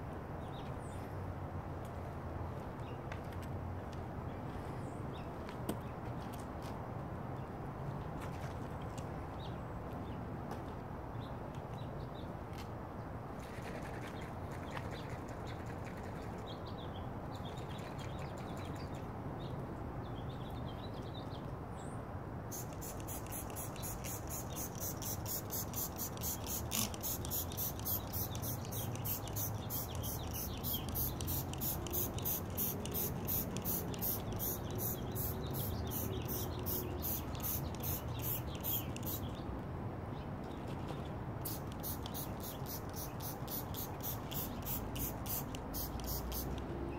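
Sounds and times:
spray bottle squirting: 22.5s - 39.3s, 41.4s - 46.6s.

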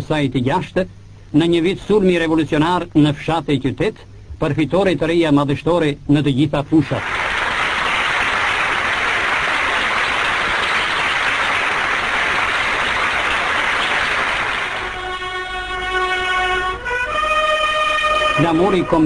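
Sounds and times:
crowd applauding: 6.9s - 15.3s
brass band playing: 14.4s - 19.0s.

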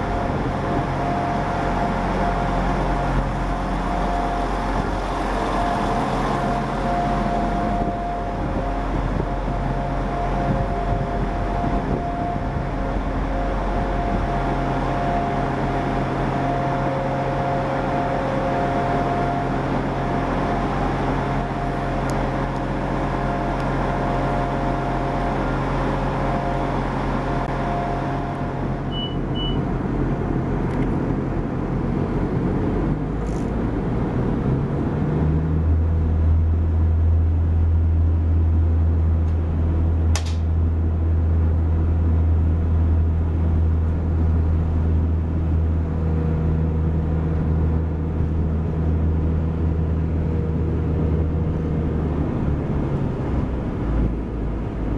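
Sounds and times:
diesel train engine idling: 0.0s - 32.5s, 35.8s - 54.9s
short high beeps: 28.9s - 29.6s.

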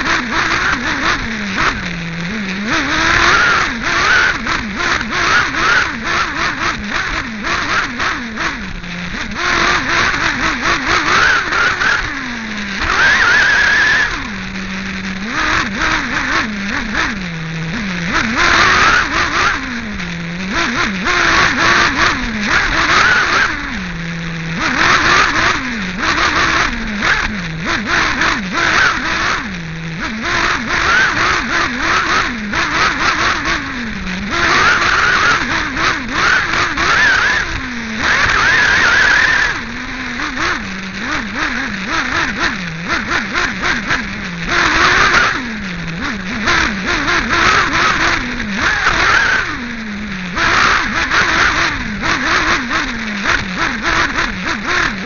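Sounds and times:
model car engine revving: 0.0s - 55.0s.

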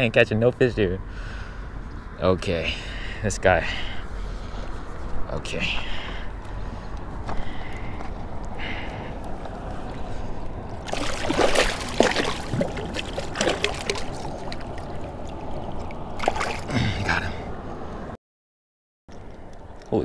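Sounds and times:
fish splashing at water surface: 10.8s - 16.8s.

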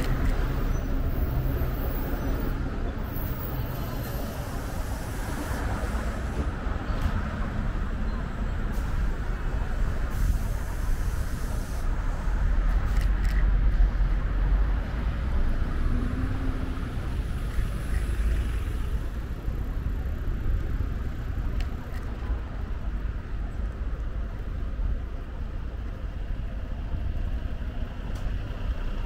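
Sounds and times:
city traffic rumble: 0.0s - 29.0s.

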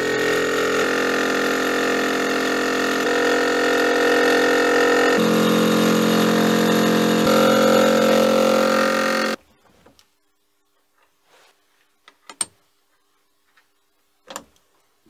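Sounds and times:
milling machine cutting steel: 0.0s - 9.4s.

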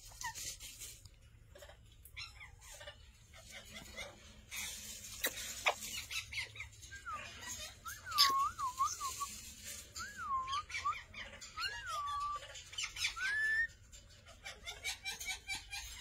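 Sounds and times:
parrot chirps and clicks: 0.1s - 9.9s
parrot whistles: 6.9s - 9.3s, 10.0s - 13.8s.

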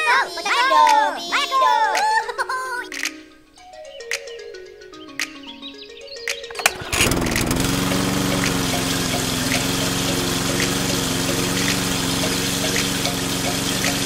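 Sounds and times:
toy water pump humming: 6.6s - 14.0s
water splashing onto sand: 6.7s - 14.0s.

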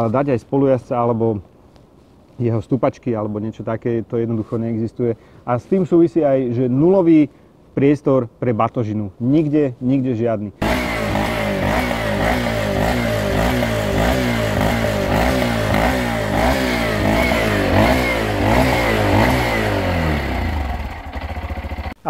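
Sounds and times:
motorcycle engine revving: 10.6s - 22.0s.

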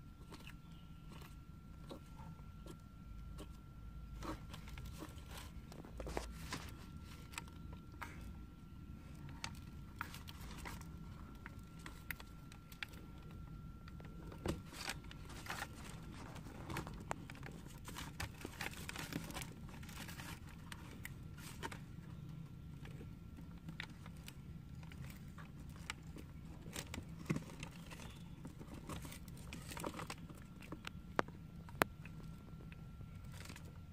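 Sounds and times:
tortoises crunching food: 0.0s - 33.9s
newspaper crinkling: 4.2s - 8.2s, 14.2s - 22.0s, 23.7s - 30.8s.

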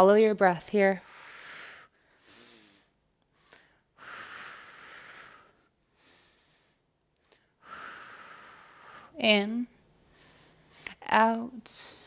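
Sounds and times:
woman breathing: 1.0s - 9.2s, 9.8s - 11.1s.

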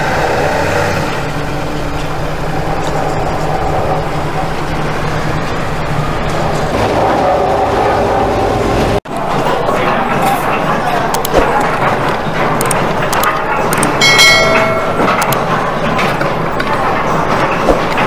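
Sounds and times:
geared crusher and mixer turning: 0.0s - 18.0s
loader diesel engines working: 0.0s - 18.0s.

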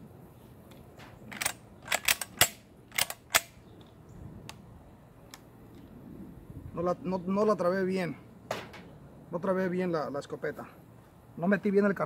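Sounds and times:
shotgun action metallic clicks: 0.7s - 4.6s.

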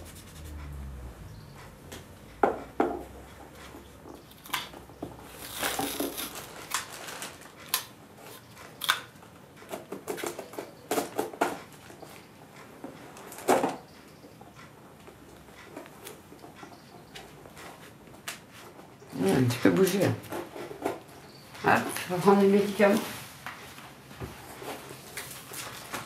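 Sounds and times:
packaging crinkling: 5.3s - 9.1s.

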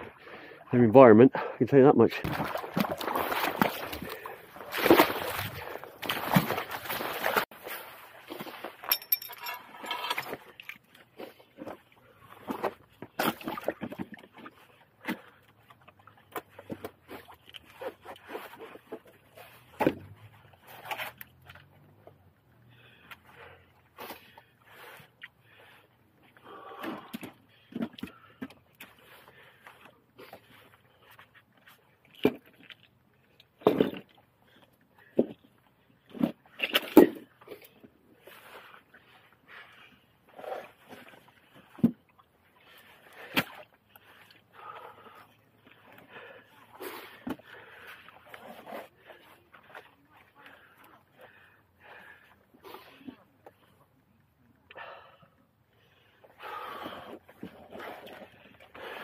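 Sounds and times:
rocks clunking and scraping: 2.1s - 22.2s, 30.3s - 39.2s, 40.3s - 44.2s.

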